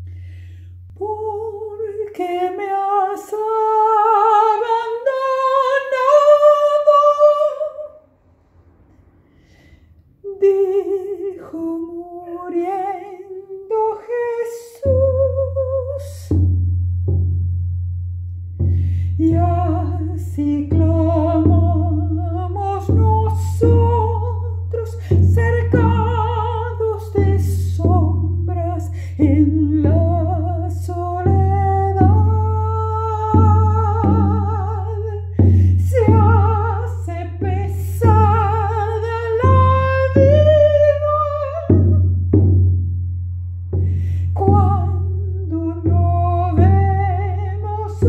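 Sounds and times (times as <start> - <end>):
person singing folk song: 0.9 - 8.0, 18.8 - 42.2, 43.8 - 48.0
low drum beating: 16.3 - 48.0.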